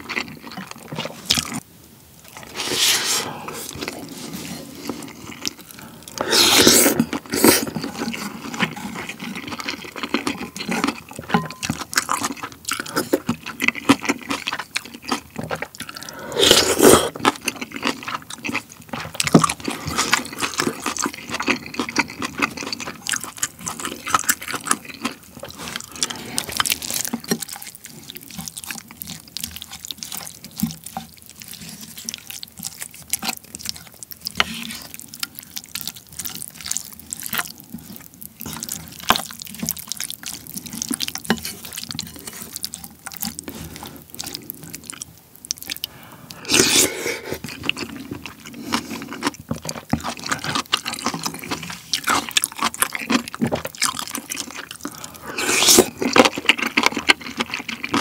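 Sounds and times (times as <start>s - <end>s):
wet chewing: 0.0s - 1.6s, 2.2s - 58.0s
slurping broth: 2.3s - 18.2s, 45.7s - 52.4s, 54.3s - 58.0s
spoon working in bowl: 10.4s - 12.2s.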